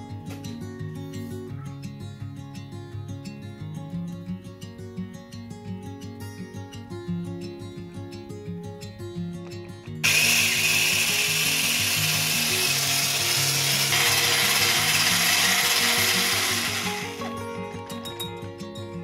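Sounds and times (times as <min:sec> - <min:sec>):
guitar music: 0:00.0 - 0:19.0
electric whisk beating in glass bowl: 0:10.0 - 0:17.4.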